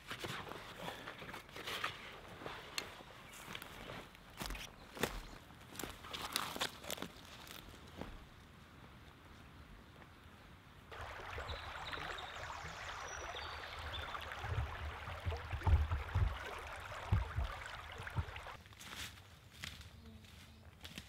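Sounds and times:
river water over stones: 10.9 - 18.6
low thumps: 14.3 - 18.6.

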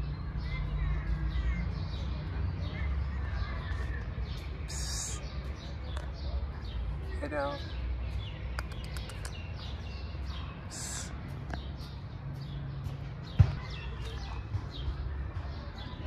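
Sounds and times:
small birds chirping: 0.0 - 16.0
sharp click: 8.6 - 9.4.

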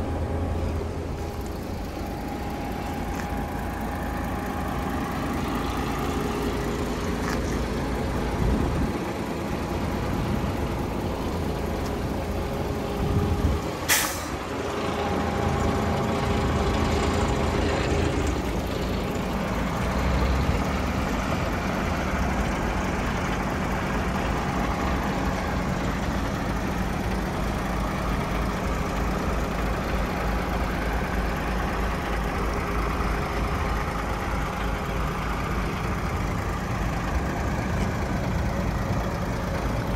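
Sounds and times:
diesel truck engine idling: 0.0 - 39.9
compressed air hiss: 13.9 - 14.4.

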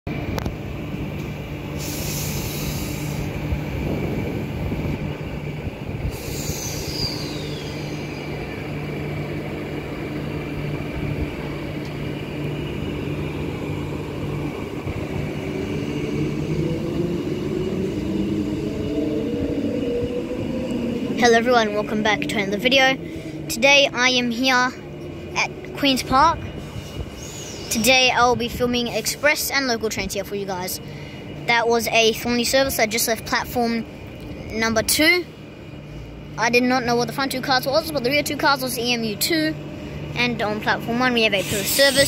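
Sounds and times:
traction motor whine: 0.1 - 27.8
electric train humming: 0.1 - 42.0
short hisses: 1.8 - 3.4, 6.0 - 8.3, 41.4 - 42.0.

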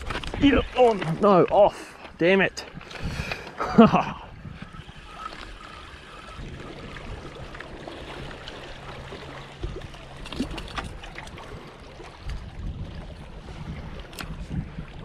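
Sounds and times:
small waves lapping over rocks: 4.8 - 15.0.

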